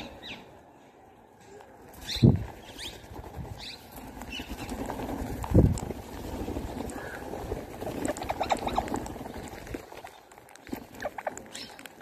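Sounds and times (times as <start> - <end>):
parakeet wings flapping: 1.9 - 12.0.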